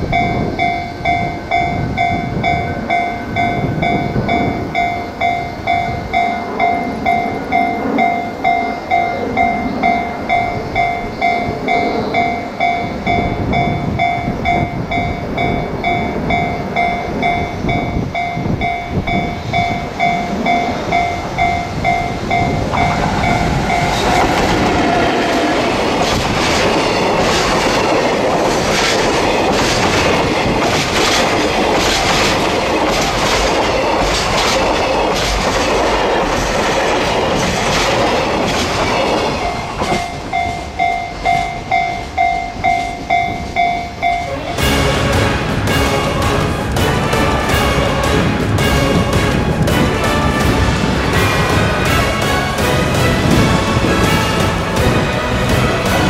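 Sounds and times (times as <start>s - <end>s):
freight train rumbling past: 0.0s - 56.0s
wheels clacking over rail joints: 14.4s - 56.0s.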